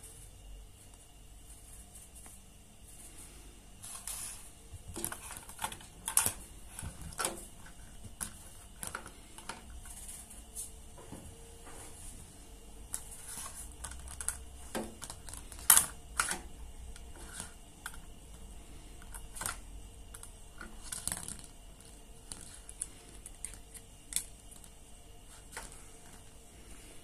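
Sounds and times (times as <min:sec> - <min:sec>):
plastic glasses clicking on floor: 0:19.0 - 0:24.8.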